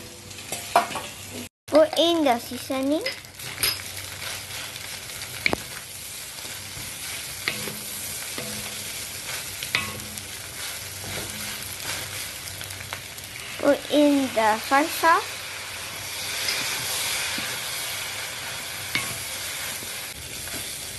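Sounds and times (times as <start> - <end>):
rice sizzling in a wok: 0.0 - 20.9
spatula stirring rice: 3.4 - 12.7.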